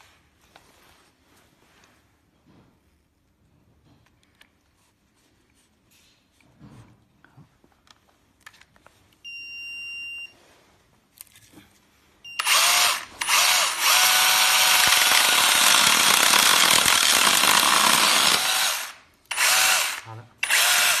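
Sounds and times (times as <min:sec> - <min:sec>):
mini chainsaw motor running: 0:12.4 - 0:21.0.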